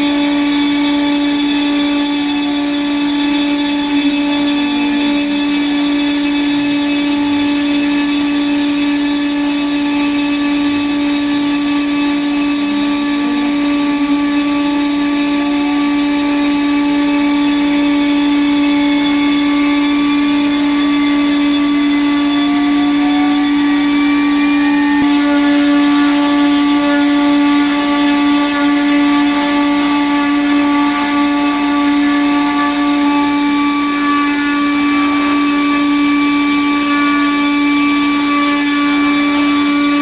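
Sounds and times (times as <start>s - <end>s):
faint rising whines: 0.0s - 30.2s
router spindle high-pitched whine: 0.0s - 40.0s.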